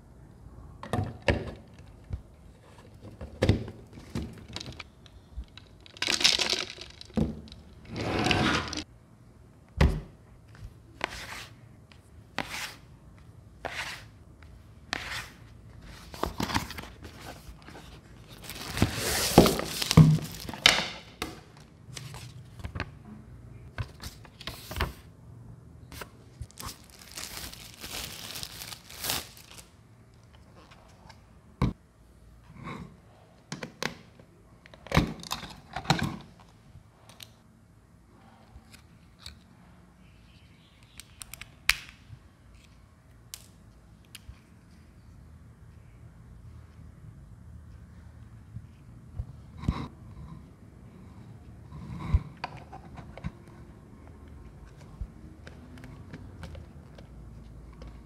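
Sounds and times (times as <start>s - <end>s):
cardboard box rustling: 16.0s - 20.6s
plastic bag crinkling and tearing: 18.4s - 20.7s, 26.5s - 29.7s.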